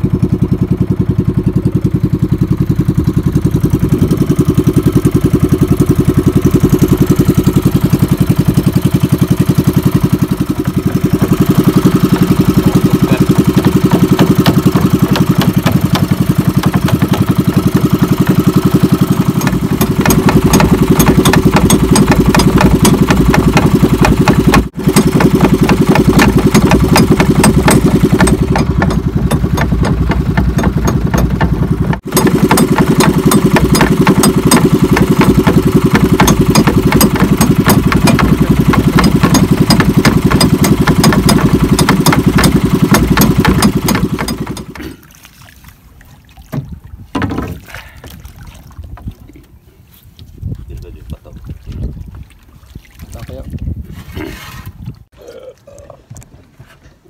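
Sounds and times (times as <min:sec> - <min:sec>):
boat engine running: 0:00.0 - 0:45.2
faint water sounds: 0:01.4 - 0:21.1, 0:44.6 - 0:57.0.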